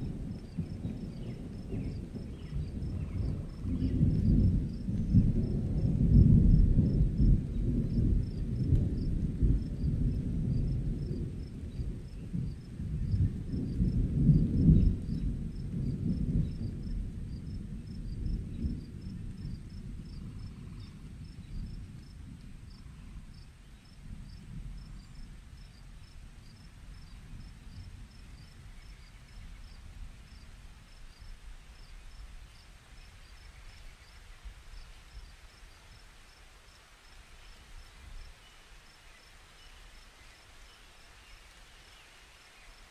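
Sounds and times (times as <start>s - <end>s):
low rolling thunder: 0.0s - 32.6s
crickets chirping: 16.5s - 42.9s.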